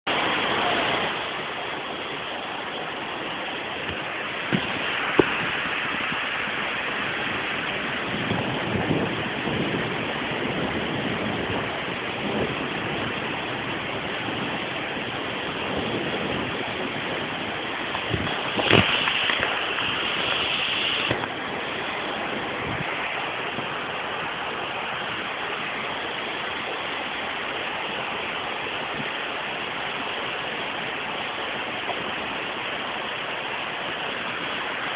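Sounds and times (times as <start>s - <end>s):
floodwater running: 0.1s - 34.9s
heavy rain: 0.1s - 34.9s
loud hiss: 18.3s - 21.2s.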